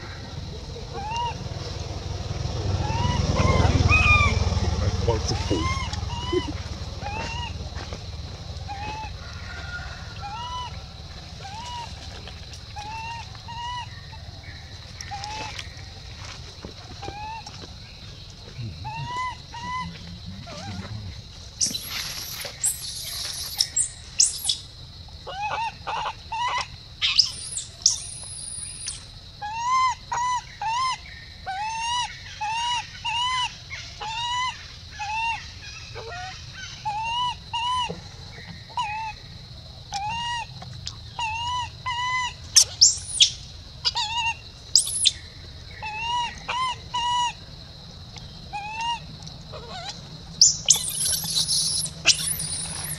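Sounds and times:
infant monkey crying: 0.0 - 1.6, 2.6 - 7.7, 8.7 - 9.2, 10.2 - 10.8, 11.4 - 12.0, 12.8 - 14.0, 18.6 - 24.6, 25.2 - 37.9, 38.7 - 39.2, 39.9 - 45.1, 45.7 - 47.5, 48.5 - 52.9
shrill shrieks: 48.6 - 52.9.

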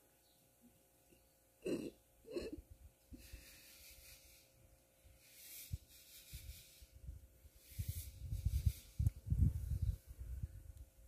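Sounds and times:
wind on microphone: 5.7 - 11.0.

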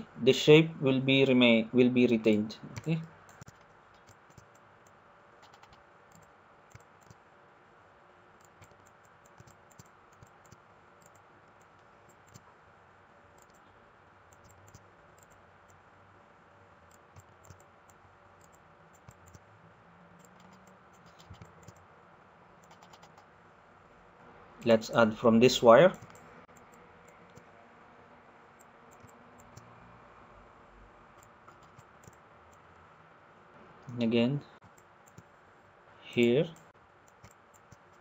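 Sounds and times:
mouse and keyboard clicks: 2.7 - 7.2, 8.4 - 12.4, 13.4 - 13.7, 14.3 - 15.4, 16.9 - 19.4, 20.2 - 21.8, 22.6 - 23.3, 25.9 - 27.5, 28.9 - 29.7, 31.2 - 32.6, 37.1 - 38.0.

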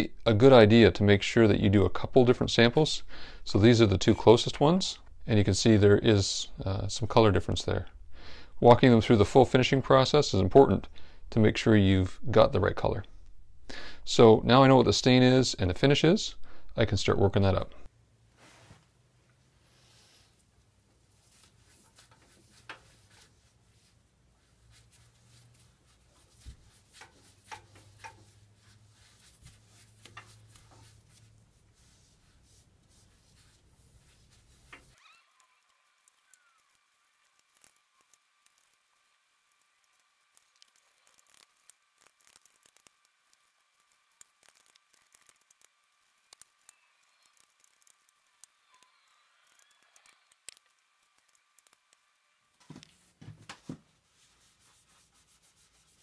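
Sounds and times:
low steady hum: 0.0 - 56.0
gloves rustling: 18.2 - 56.0
foam brush rubbing on wood: 19.6 - 48.8, 54.0 - 56.0
sharp clicks: 44.2 - 52.0.

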